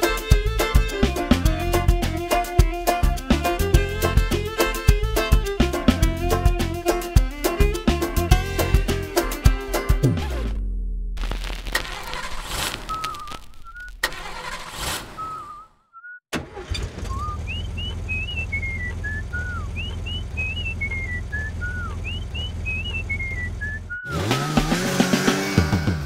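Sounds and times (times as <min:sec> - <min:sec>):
person whistling: 0:12.9 - 0:14.0, 0:15.2 - 0:16.2, 0:17.1 - 0:24.4
low engine rumble: 0:16.5 - 0:24.6.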